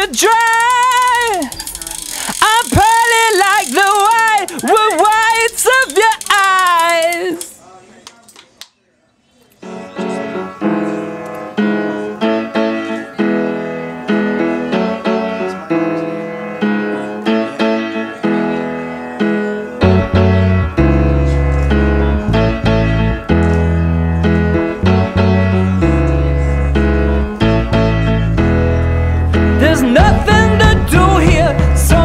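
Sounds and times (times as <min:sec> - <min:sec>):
piano playing: 0:09.6 - 0:32.0
deep bass: 0:19.9 - 0:32.0.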